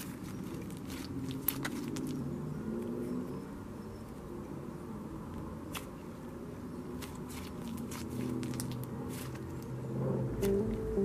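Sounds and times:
slime squished by hand: 0.0 - 2.2, 6.9 - 9.7
low rumble of passing cars: 0.0 - 11.0.

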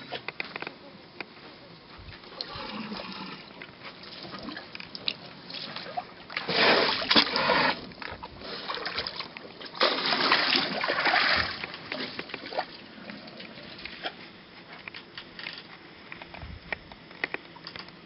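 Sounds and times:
water splashing and gushing: 2.3 - 14.2.

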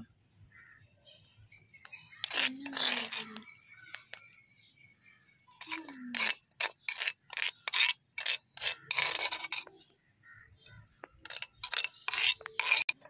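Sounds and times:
rhythmic scraping strokes: 2.1 - 3.5, 5.4 - 9.9, 11.0 - 13.0.

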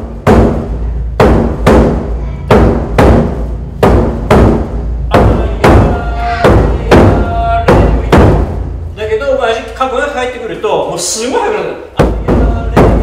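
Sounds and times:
taiko drum strokes: 0.0 - 9.2.

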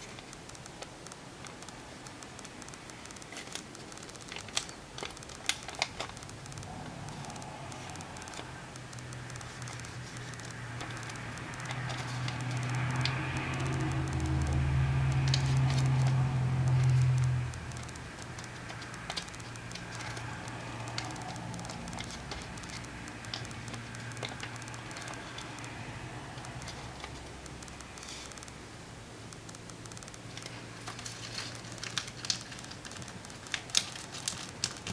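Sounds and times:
paper crinkling as it is folded: 2.4 - 28.5, 29.8 - 34.9
low hum: 4.5 - 32.3.

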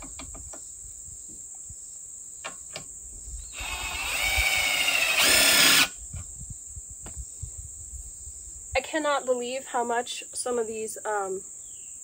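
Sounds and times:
crickets buzzing: 0.0 - 12.0
impact driver whining and rattling: 3.6 - 5.9.

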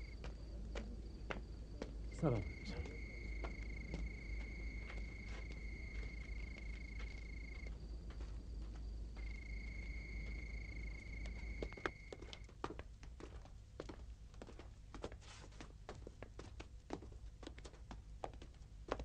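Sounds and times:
cricket chirping: 0.0 - 12.5.

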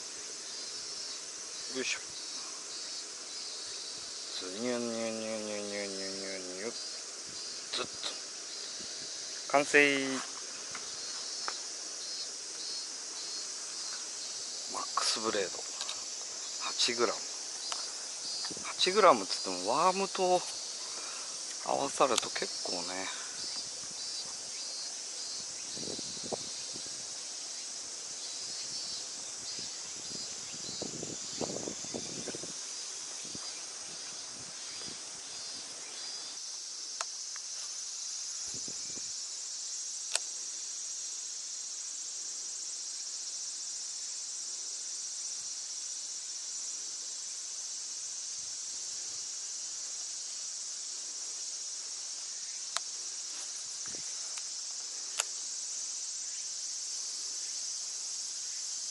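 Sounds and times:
cicadas shrilling: 0.0 - 58.9
sharp single clicks: 40.1 - 40.3.

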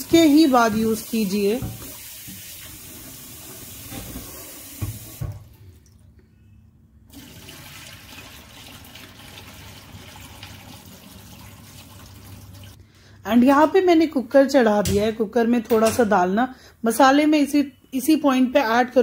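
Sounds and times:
tap water running into pot: 0.0 - 5.6, 7.1 - 12.8
water pouring into steel sink: 0.0 - 6.0, 7.1 - 12.8.

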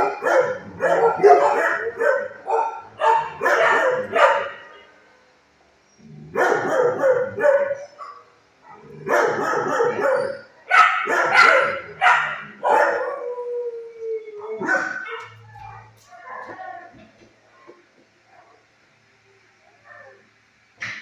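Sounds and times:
dog howling: 0.0 - 4.2, 11.2 - 16.9
dogs barking: 0.0 - 4.8, 6.2 - 13.4, 14.4 - 16.6.

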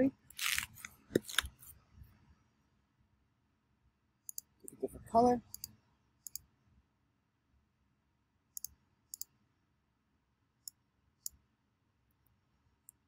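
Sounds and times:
computer mouse clicking: 4.3 - 4.8, 5.5 - 6.5, 8.6 - 9.3.

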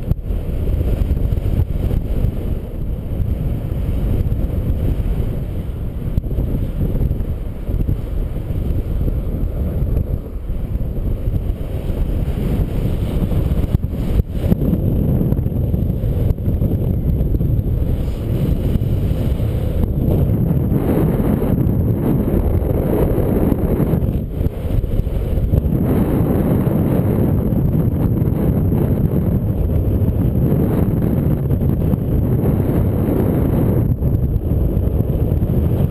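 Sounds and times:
wind buffeting microphone: 0.0 - 35.9.

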